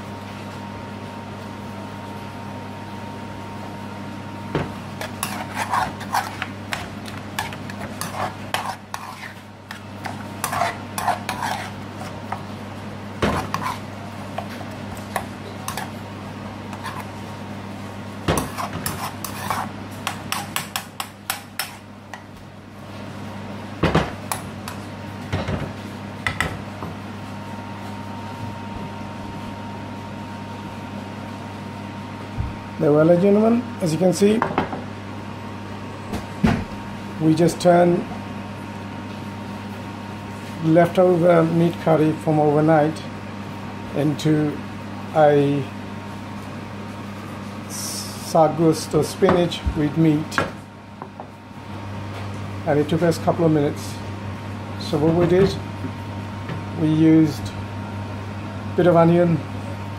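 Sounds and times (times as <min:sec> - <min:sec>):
steady low hum: 0:00.0 - 0:59.9
utensil stirring in metal pan: 0:04.9 - 0:12.5, 0:13.2 - 0:16.0, 0:16.7 - 0:17.2, 0:18.4 - 0:21.9.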